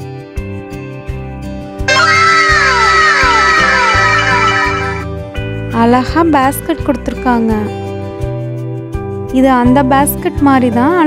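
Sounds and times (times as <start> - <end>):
falling tones effect: 1.9 - 5.1.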